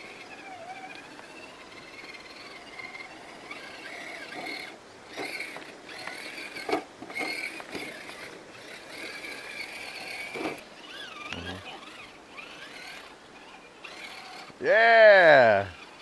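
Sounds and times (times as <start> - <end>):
toy car electric motor whining: 0.0 - 16.0.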